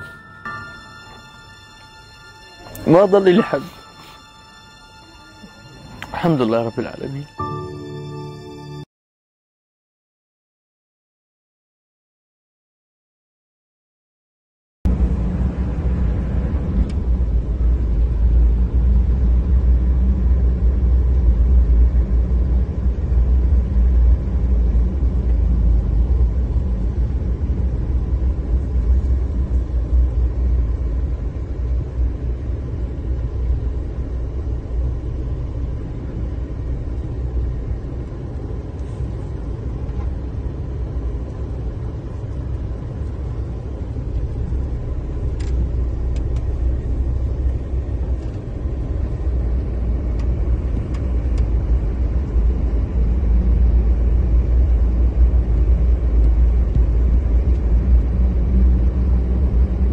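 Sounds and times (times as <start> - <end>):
car engine and tyres rumbling: 14.9 - 59.9.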